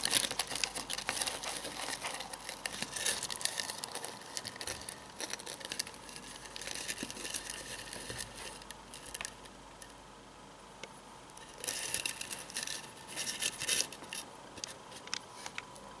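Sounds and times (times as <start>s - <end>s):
beetle feet scratching: 0.0s - 9.1s.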